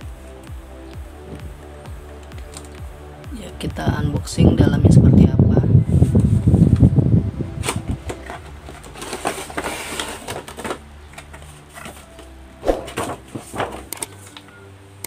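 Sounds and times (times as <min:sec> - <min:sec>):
packaging rustling and clicking: 0:02.2 - 0:02.8, 0:07.6 - 0:14.6.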